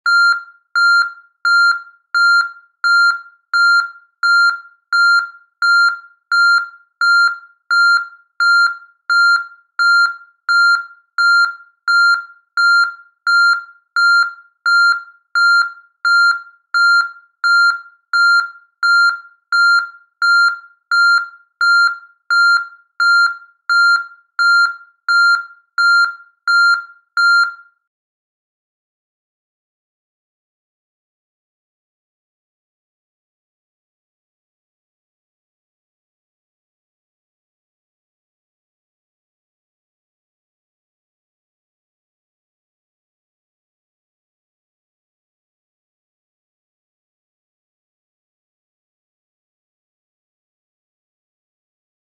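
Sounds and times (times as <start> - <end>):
vehicle reversing alarm beeping: 0.1 - 27.7.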